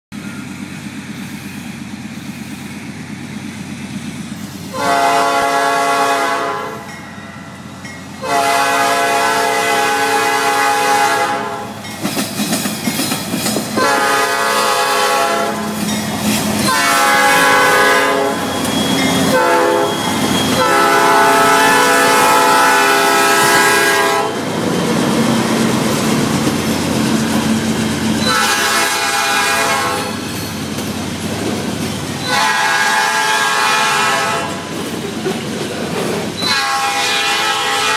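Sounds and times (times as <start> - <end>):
locomotive engines rumbling: 0.1 - 37.9
locomotive air horn blasts: 4.7 - 7.0, 8.2 - 11.8, 13.8 - 15.8, 16.6 - 18.5, 19.2 - 24.4, 28.2 - 30.2, 32.2 - 34.6, 36.4 - 37.9
train wheels clattering: 11.7 - 37.9.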